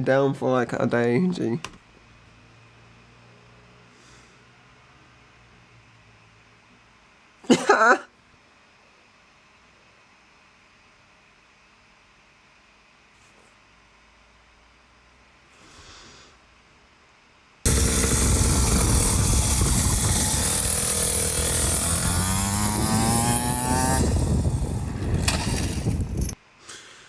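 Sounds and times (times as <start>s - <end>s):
loud rushing noise: 17.7s - 25.8s
dirt bike engine revving: 17.7s - 26.4s.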